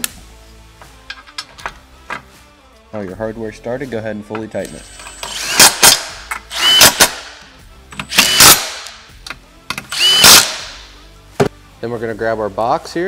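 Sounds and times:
power tool spinning socket: 0:04.7 - 0:07.3, 0:08.0 - 0:09.0, 0:09.7 - 0:10.8.

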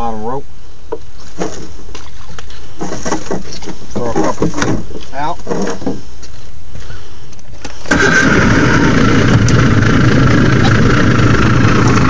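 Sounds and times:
high whine: 0:07.6 - 0:12.0
boat motor droning: 0:07.8 - 0:12.0.

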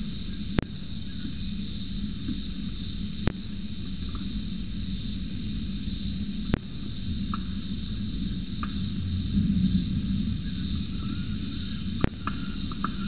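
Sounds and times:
cicada chorus drone: 0:00.0 - 0:13.0
low rumble: 0:08.6 - 0:13.0.

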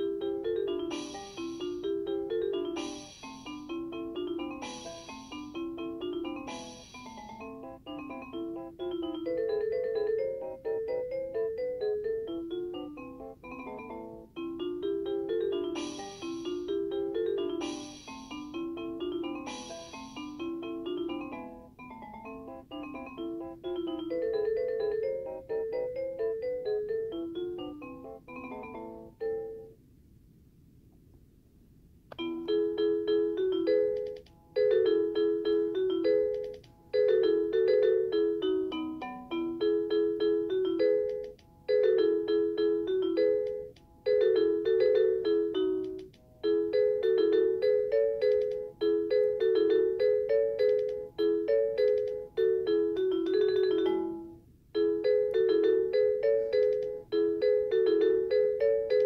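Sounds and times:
electronic lullaby chime melody: 0:00.0 - 0:29.8, 0:32.2 - 0:59.0
faint hiss: 0:02.8 - 0:03.7, 0:06.5 - 0:07.3, 0:17.6 - 0:18.6, 0:19.5 - 0:20.4.

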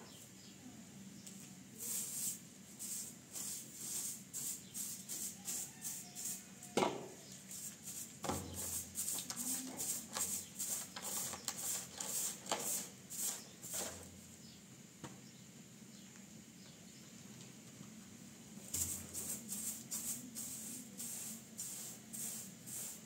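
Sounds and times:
broom sweeping hard floor: 0:01.8 - 0:14.3, 0:18.6 - 0:23.0.

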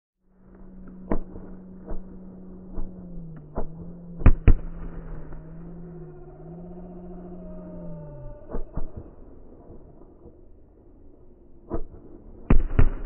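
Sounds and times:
steady low hum: 0:00.2 - 0:13.0
fireworks bangs: 0:01.0 - 0:06.0.

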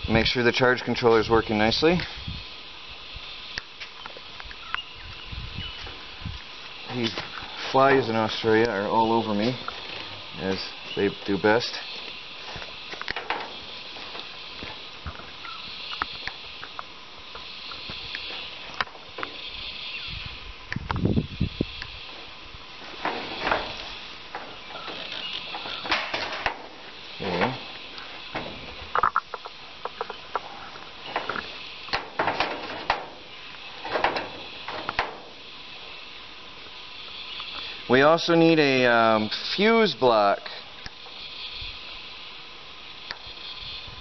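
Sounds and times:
steady high hiss: 0:00.0 - 0:44.0
hands twisting wires clicking: 0:12.9 - 0:14.7, 0:22.9 - 0:35.4.

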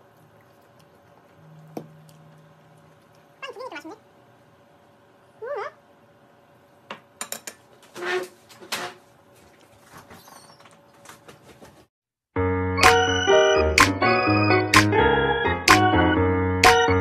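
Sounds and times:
keyboard music: 0:12.4 - 0:17.0.

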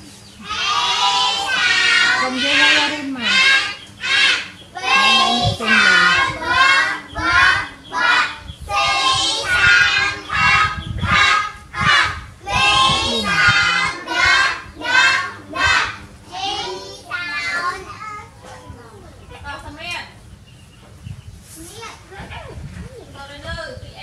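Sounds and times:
child singing: 0:00.4 - 0:19.2.

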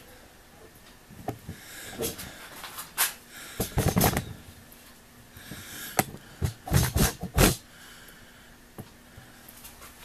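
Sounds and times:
camera handling knocks and rustling: 0:03.6 - 0:04.2.

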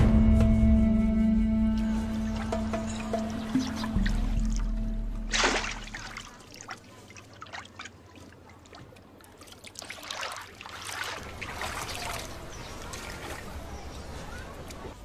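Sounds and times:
water trickling and dripping: 0:02.3 - 0:14.8
water splashing in a tank: 0:03.6 - 0:14.5.

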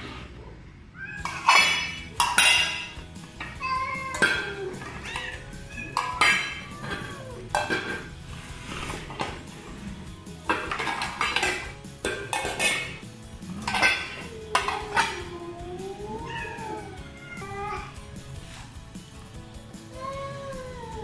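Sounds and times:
cats meowing: 0:00.9 - 0:09.3, 0:13.6 - 0:18.2, 0:19.8 - 0:21.0
metal dishes and cutlery clinking: 0:01.2 - 0:18.1.

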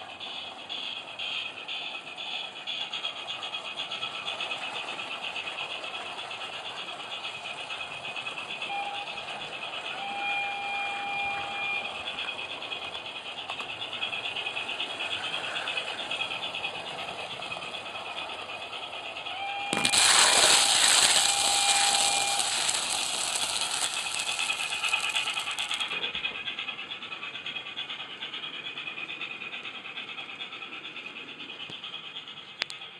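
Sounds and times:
model train rattly running sound: 0:00.0 - 0:32.9
loud steam hiss: 0:19.7 - 0:25.9.

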